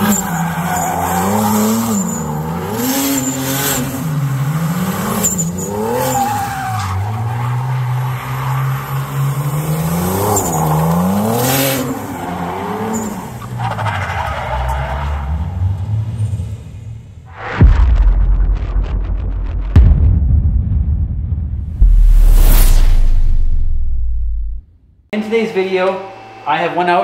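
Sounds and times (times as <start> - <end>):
car engine revving: 0.0 - 13.1.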